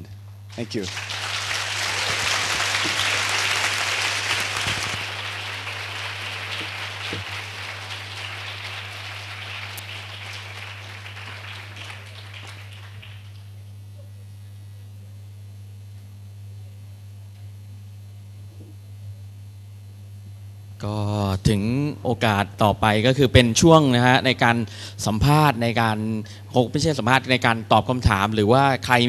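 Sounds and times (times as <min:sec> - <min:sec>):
low electrical hum: 0:00.0 - 0:29.0
audience applauding: 0:00.5 - 0:13.5.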